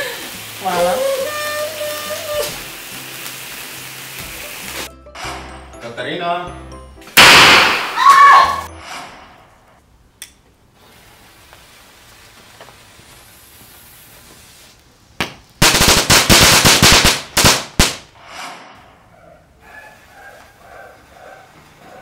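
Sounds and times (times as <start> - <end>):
firecracker fuse hiss: 0.0 - 5.6, 10.8 - 18.8
firecrackers crackling bangs: 7.2 - 8.2, 15.2 - 18.7.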